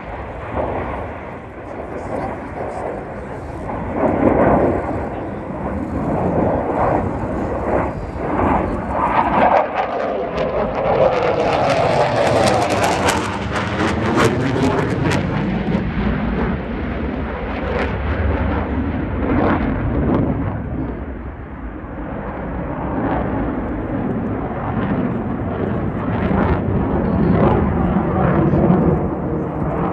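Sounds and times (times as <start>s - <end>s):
jet noise crackles: 0.0s - 16.9s
fighter jet passing overhead: 0.0s - 29.9s.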